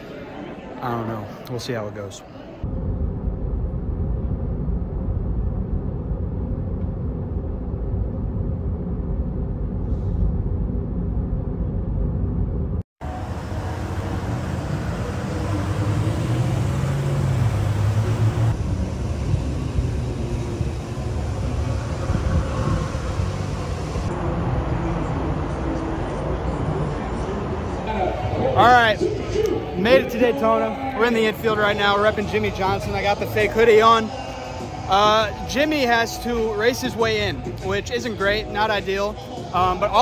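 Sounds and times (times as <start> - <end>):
outdoor noise: 0.0 - 40.0
car road rumble: 2.6 - 28.6
low hum: 2.6 - 35.4.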